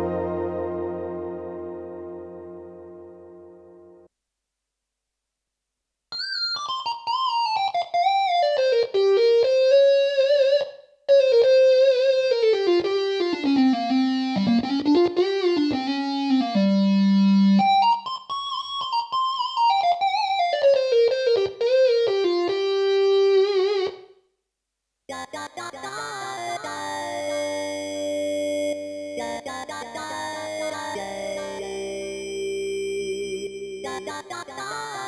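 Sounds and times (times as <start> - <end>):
synthesizer lead melody: 0.0 - 4.1, 30.2 - 34.3.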